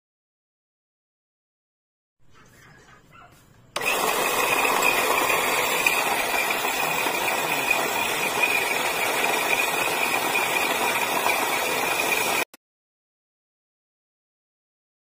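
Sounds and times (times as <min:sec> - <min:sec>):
coffee grinder whining: 0:03.8 - 0:12.5.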